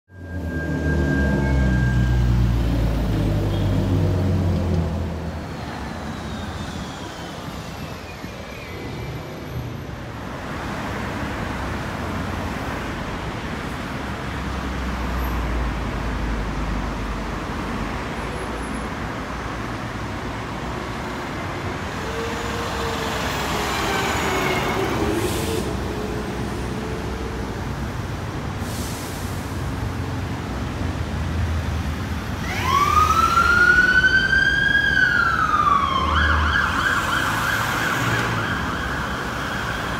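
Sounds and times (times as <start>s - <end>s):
lower wavering siren tone: 0.1s - 3.0s
fire engine siren wailing: 0.1s - 4.5s, 21.8s - 27.5s, 32.4s - 39.9s
city street traffic noise: 0.1s - 39.9s.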